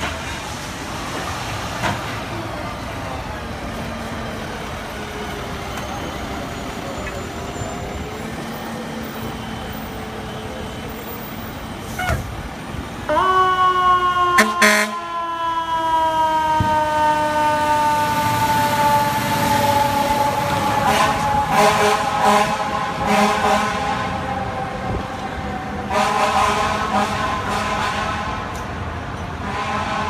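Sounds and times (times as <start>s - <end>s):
fire engine mechanical siren: 3.4s - 28.3s
air horn blasts: 14.3s - 15.1s, 20.8s - 24.2s, 25.9s - 28.4s, 29.4s - 30.0s.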